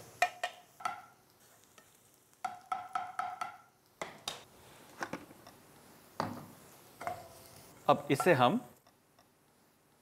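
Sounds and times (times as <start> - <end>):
spoon knocking in metal pan: 0.2 - 1.2, 2.4 - 4.3.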